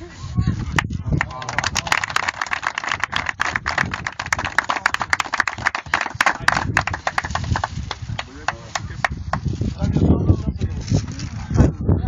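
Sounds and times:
people applauding: 1.2s - 8.8s.

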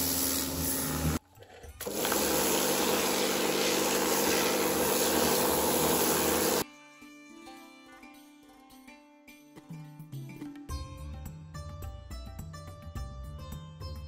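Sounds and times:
pressure washer motor humming: 0.0s - 1.2s, 1.8s - 6.6s
water jet hissing on rock: 1.8s - 6.6s.

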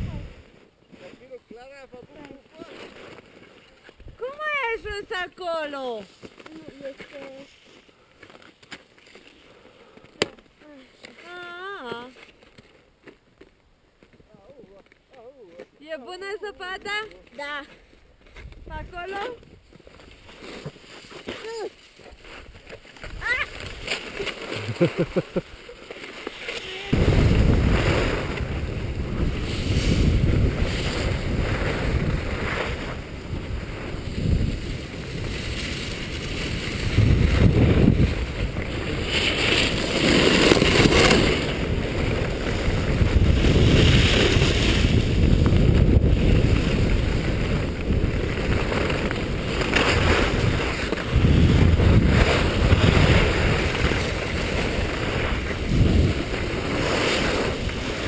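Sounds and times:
wind blasting microphone: 0.0s - 0.4s, 26.9s - 58.0s
skis scraping on snow: 0.0s - 10.0s, 16.2s - 58.0s.

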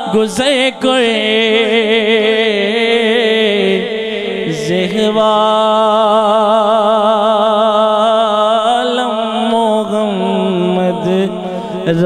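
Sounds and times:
man singing into a microphone: 0.0s - 12.0s.

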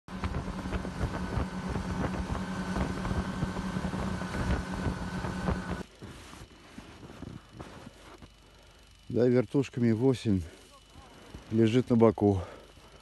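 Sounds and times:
wind buffeting microphone: 0.1s - 5.8s
snowmobile engine running: 0.1s - 8.1s
knocks and jolts over rough snow: 0.1s - 8.3s.

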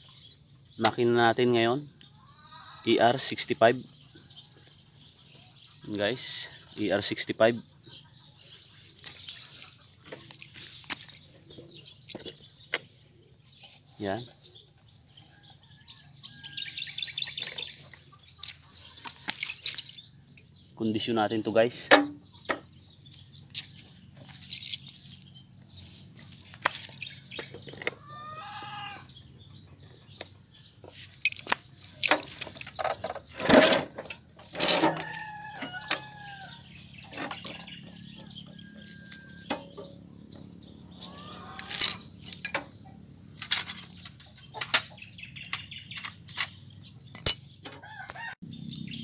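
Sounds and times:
rooster crowing: 2.2s - 3.0s, 15.2s - 17.1s, 28.0s - 29.1s, 34.7s - 36.9s, 37.5s - 39.5s, 41.0s - 41.9s, 47.8s - 48.6s
metal clanks and knocks: 31.2s - 35.2s, 37.1s - 40.0s, 41.7s - 42.8s.

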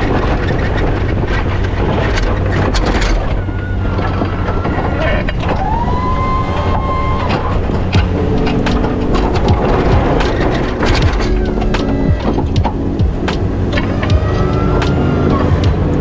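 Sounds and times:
scattered knocks: 0.0s - 16.0s
snowplow pushing snow: 0.0s - 16.0s
steady whine: 0.0s - 16.0s.

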